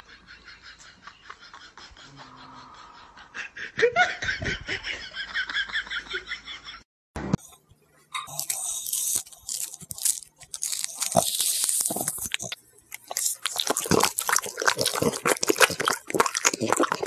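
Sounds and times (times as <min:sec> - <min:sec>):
person laughing: 0:00.0 - 0:05.3.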